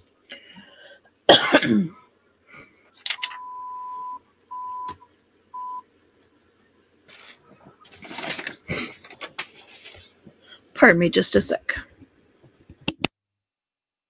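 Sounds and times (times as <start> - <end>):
electronic beep: 3.2 - 5.0, 5.6 - 5.8.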